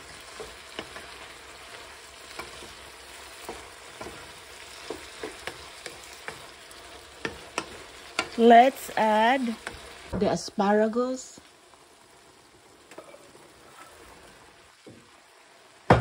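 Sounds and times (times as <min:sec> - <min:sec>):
wooden spatula scraping a pan: 0:00.0 - 0:08.6, 0:12.9 - 0:14.4
shrimp sizzling in a frying pan: 0:00.0 - 0:16.0.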